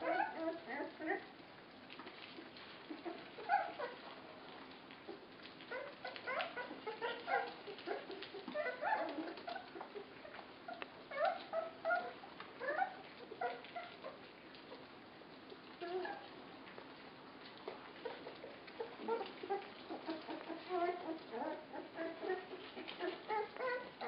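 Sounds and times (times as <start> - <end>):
puppies squeaking and whimpering: 0.0 - 1.3, 2.8 - 4.1, 5.1 - 14.8, 15.8 - 16.3, 18.0 - 24.0.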